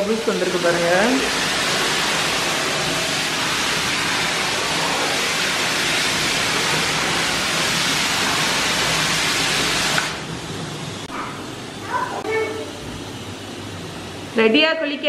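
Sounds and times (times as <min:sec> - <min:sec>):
bath tap running into tub: 0:00.0 - 0:10.7.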